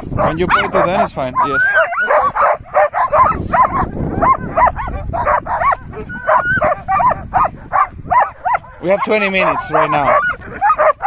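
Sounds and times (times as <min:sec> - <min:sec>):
sled dogs barking and yelping: 0:00.0 - 0:11.0.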